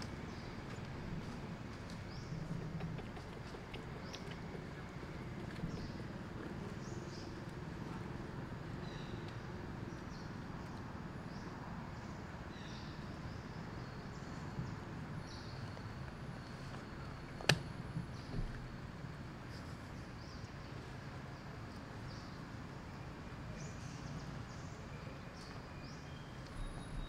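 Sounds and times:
steady low rumble: 0:00.0 - 0:12.3
sharp click: 0:17.4 - 0:17.7.

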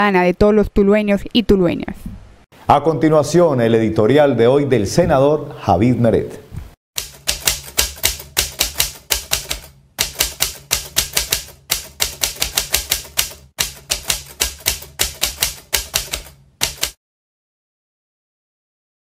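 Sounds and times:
typewriter keys clacking: 0:07.0 - 0:17.0.

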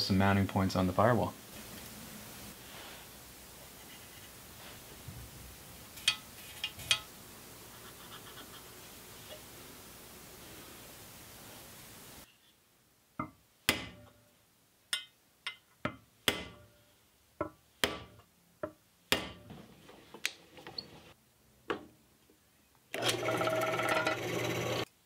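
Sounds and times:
drill press motor running: 0:23.0 - 0:24.9.

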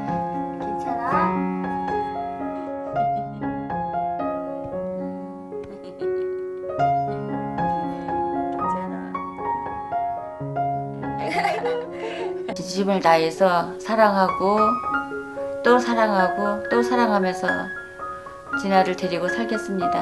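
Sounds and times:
gentle piano music: 0:00.0 - 0:20.0.

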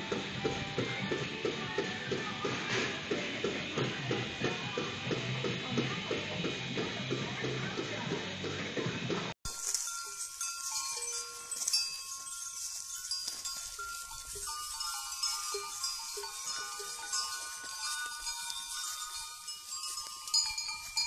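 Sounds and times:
goat bells ringing and clanking: 0:09.5 - 0:21.0.

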